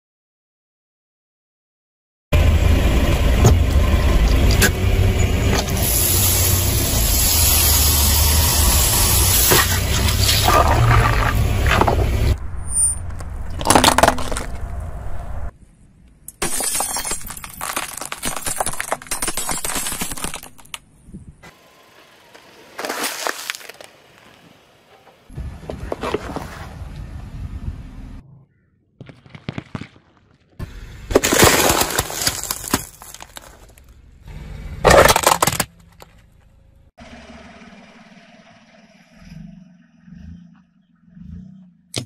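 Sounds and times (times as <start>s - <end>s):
low rumble: 9.9s - 16.2s
car tyre crushing plastic: 13.5s - 14.6s, 16.4s - 20.8s, 22.6s - 24.1s, 31.0s - 34.0s, 34.8s - 36.3s.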